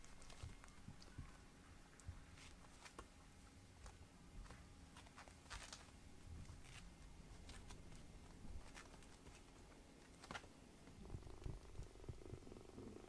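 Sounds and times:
kittens' paws pattering on mat: 2.0 - 3.1, 3.8 - 10.5.

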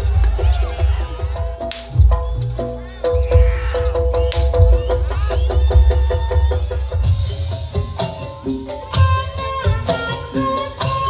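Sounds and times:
deep bass beats: 0.0 - 9.9
gamelan music: 0.0 - 11.0
sharp crack: 1.6 - 2.0.

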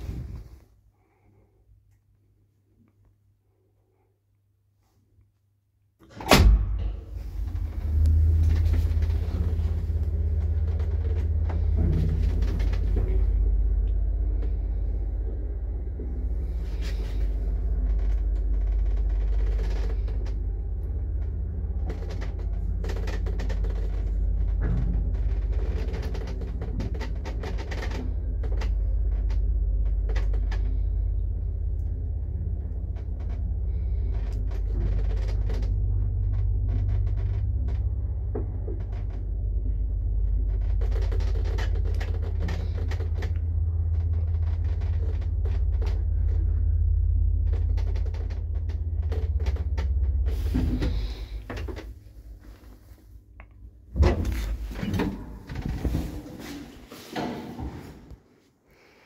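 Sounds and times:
lift machinery rumbling: 0.0 - 1.6, 6.2 - 58.3.

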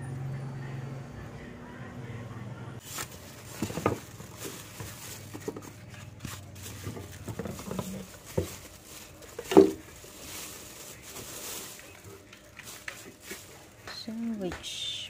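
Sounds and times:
handling knocks: 2.8 - 14.7
plastic bag crinkling: 2.8 - 15.0.

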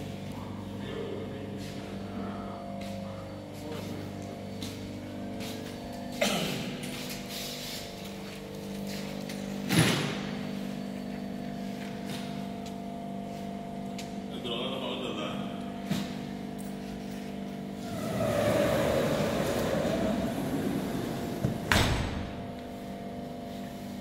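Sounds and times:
machinery hum: 0.0 - 24.0
loud bangs ringing in room: 21.6 - 22.6.

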